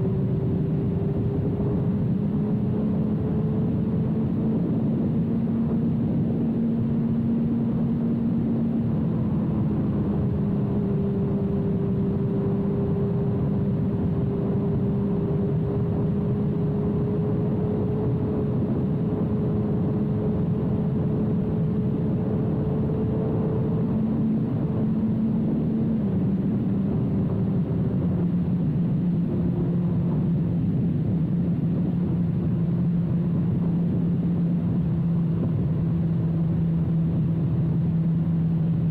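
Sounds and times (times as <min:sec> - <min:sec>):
motorcycle engine cruising: 0:00.0 - 0:38.9
wind rush on microphone: 0:00.0 - 0:38.9.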